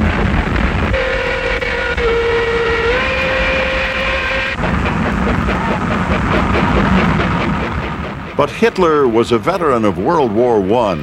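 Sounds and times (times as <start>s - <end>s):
train passing at speed: 0.0s - 11.0s
steam locomotive whistle: 0.8s - 4.9s.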